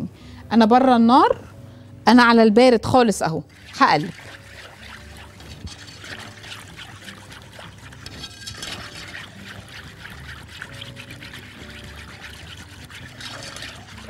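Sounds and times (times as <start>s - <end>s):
whisk swishing liquid: 3.5s - 14.0s.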